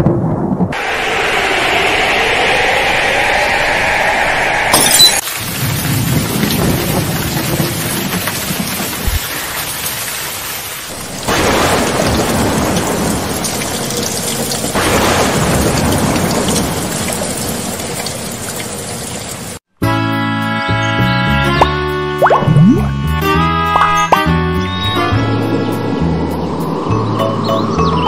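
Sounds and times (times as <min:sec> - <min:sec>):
thunder rolling: 0:00.0 - 0:03.8, 0:05.4 - 0:10.0, 0:10.9 - 0:19.6
heavy rain: 0:00.7 - 0:19.6.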